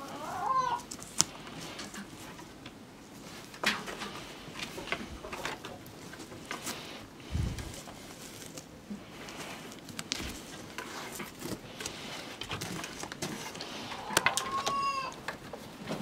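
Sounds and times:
chicken call: 0.0s - 0.9s, 13.8s - 15.2s.

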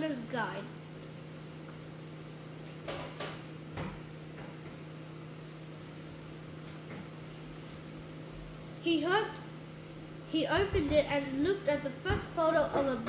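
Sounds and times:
low electrical hum: 0.0s - 13.0s.

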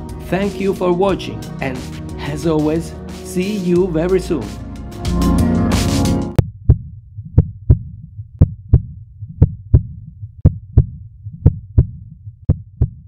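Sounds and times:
heartbeat thumps: 6.3s - 13.0s.

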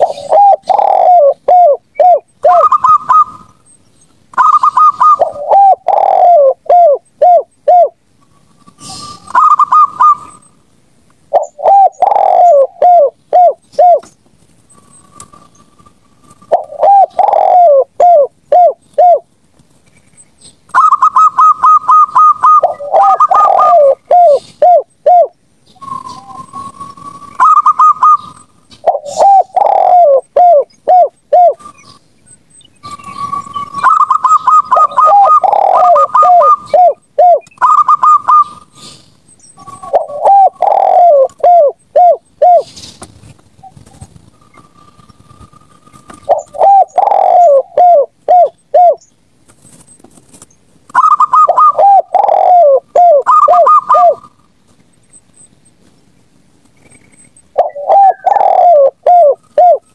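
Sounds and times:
doves cooing: 0.0s - 3.6s, 4.3s - 10.5s, 11.3s - 14.1s, 14.7s - 19.3s, 20.4s - 32.0s, 32.8s - 49.1s, 50.9s - 54.5s, 57.4s - 59.9s.

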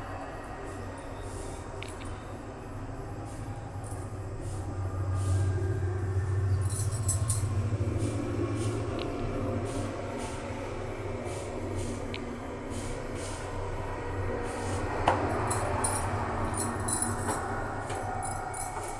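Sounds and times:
gas burner flame rumbling: 0.0s - 18.9s.

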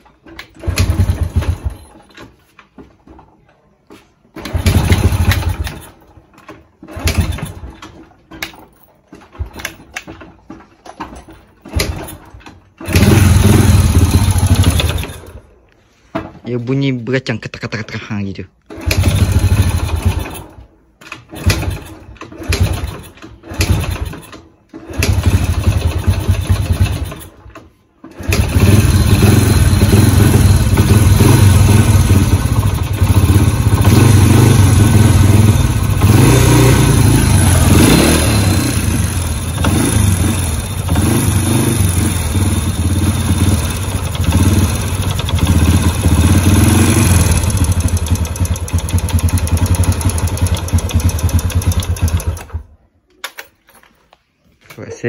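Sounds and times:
motorcycle engine starting and revving: 0.0s - 15.8s, 18.6s - 53.5s
engine top-end rattling: 18.7s - 52.8s.

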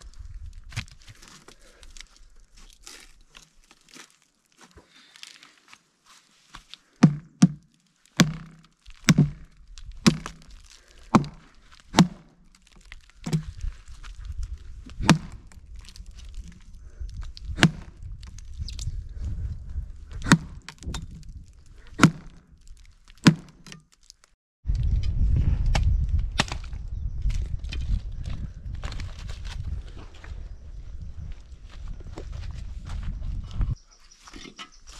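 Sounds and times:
knife chopping dry wood: 6.8s - 12.4s, 13.2s - 13.7s, 14.9s - 15.6s, 17.4s - 18.0s, 20.1s - 21.2s, 21.8s - 22.4s, 23.1s - 24.1s, 26.4s - 26.7s.

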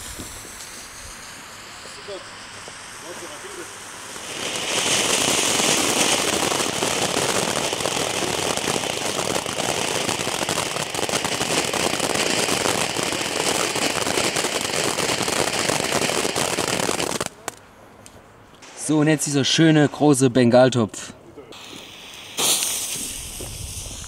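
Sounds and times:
firework fountain hissing and crackling: 0.0s - 17.6s, 18.6s - 24.0s.

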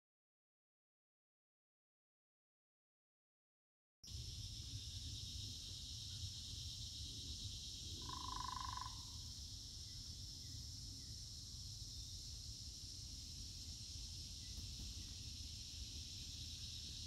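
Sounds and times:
frog trill: 8.0s - 9.2s.

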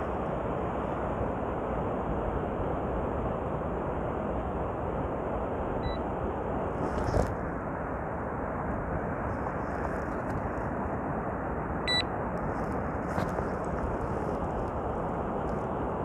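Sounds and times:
wind: 0.0s - 16.0s
short high-pitched beep: 11.9s - 12.1s.

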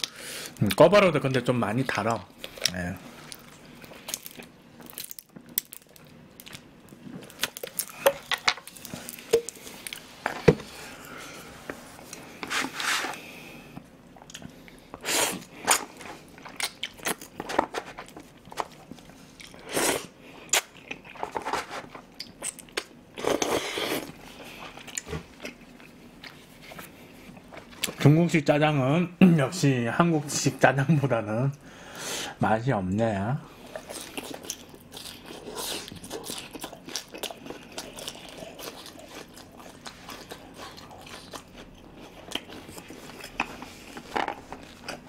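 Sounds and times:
chewing: 33.6s - 45.0s.

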